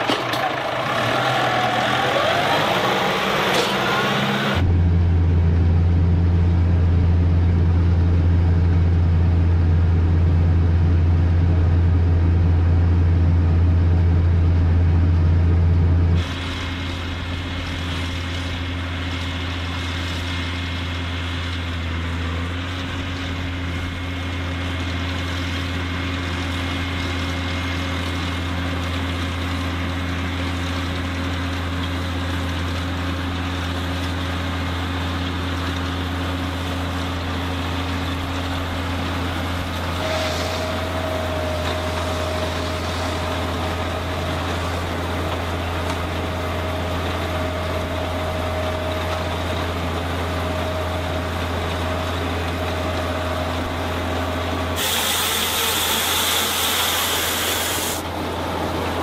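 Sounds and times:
tractor engine running: 0.0 - 59.0
loud hiss: 40.0 - 43.4, 54.8 - 58.1.

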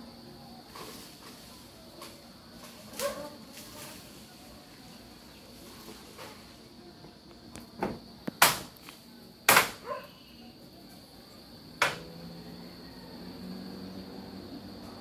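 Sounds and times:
insect trill: 0.0 - 15.0
bangs on corrugated metal roof: 9.5 - 9.8.

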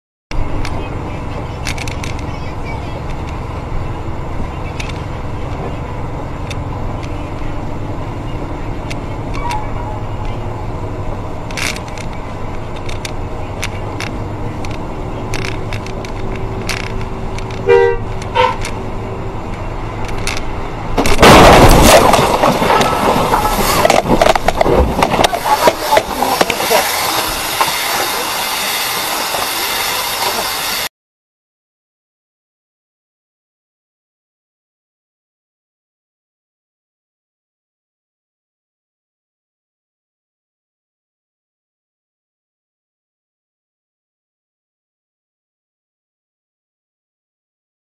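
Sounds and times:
bus engine rumble: 0.3 - 30.9
bus horn blast: 17.5 - 18.8
loud clattering: 20.0 - 28.2
loud crash: 20.9 - 30.4
tyre hiss on wet road: 25.3 - 30.9.

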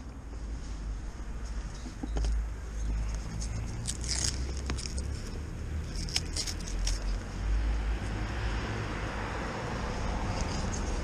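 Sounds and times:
rubber cable rustling and clicking: 1.9 - 7.3.

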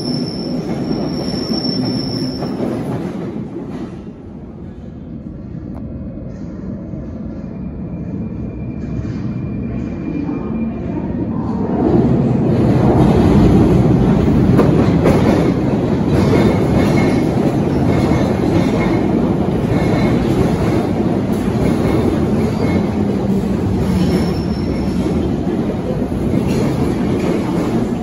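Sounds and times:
wheel squeal: 0.0 - 2.6, 23.9 - 25.0
train wheels rumbling on rails: 0.0 - 28.0.

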